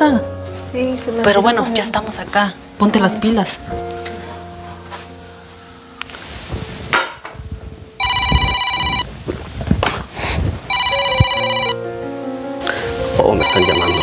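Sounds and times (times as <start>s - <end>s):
phone ringing electronic ringtone: 8.0s - 9.1s, 10.7s - 11.8s, 13.3s - 14.0s.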